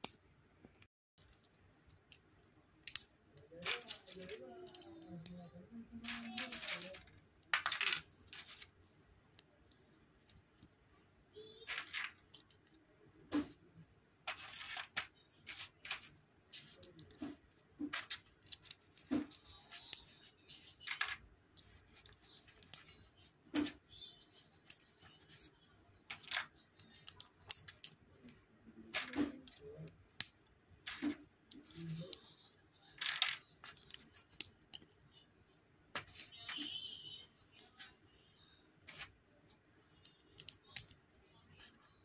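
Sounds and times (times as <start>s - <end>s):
plastic bricks clicking together: 11.6s - 12.8s.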